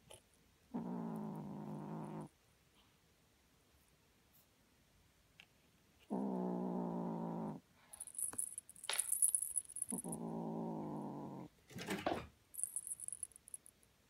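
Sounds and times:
kitten growling: 0.7 - 2.3, 6.1 - 7.7, 9.8 - 11.5
toy bell jingling: 8.0 - 10.1, 12.6 - 13.7.

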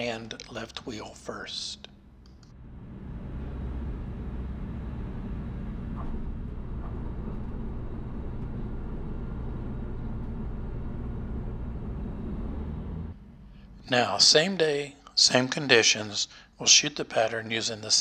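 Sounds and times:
aircraft engine and propeller droning: 2.3 - 13.8.

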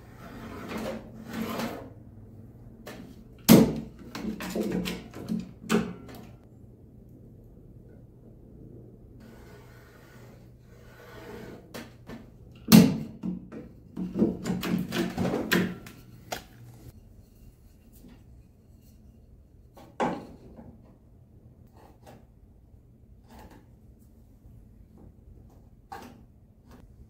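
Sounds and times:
clunks and rattles of tools: 2.9 - 6.4.

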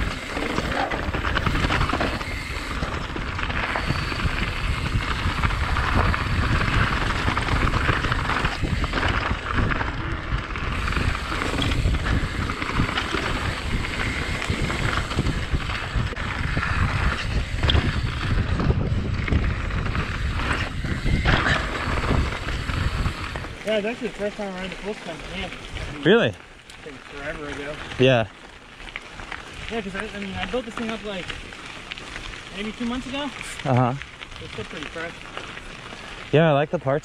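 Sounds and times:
wind buffeting microphone: 0.0 - 26.1
bike rattling over rough ground: 0.0 - 37.0
bike tyres rolling on dirt: 0.0 - 37.0.

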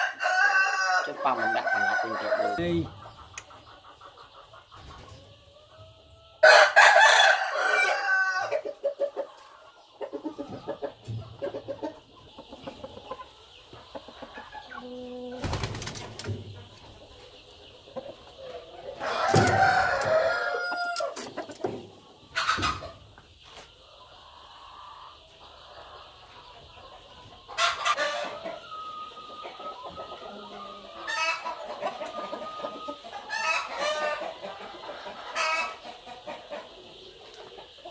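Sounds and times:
rooster crowing: 0.0 - 2.7, 6.4 - 8.6, 19.0 - 21.2
rooster clucking: 29.4 - 36.8.

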